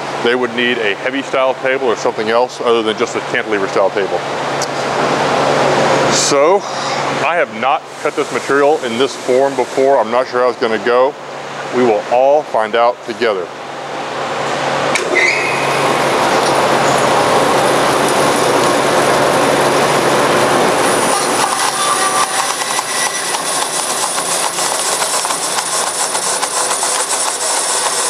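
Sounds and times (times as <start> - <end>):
bandsaw cutting plastic film: 15.7 - 28.0.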